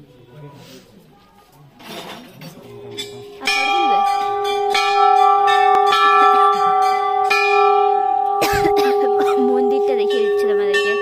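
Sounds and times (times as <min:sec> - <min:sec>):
large bronze bell ringing: 0:03.0 - 0:11.0.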